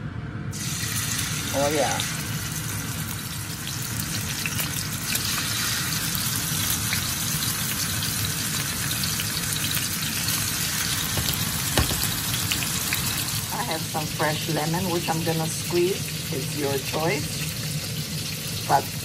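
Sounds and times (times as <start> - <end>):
meat sizzling in a frying pan: 0.5 - 19.0
sharp knock: 11.2 - 12.3.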